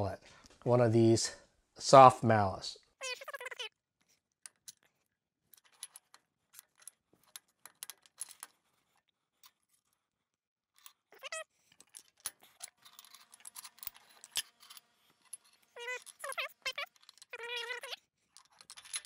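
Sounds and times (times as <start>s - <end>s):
steel parts clicking and clinking: 4.0s - 10.0s, 10.8s - 19.0s.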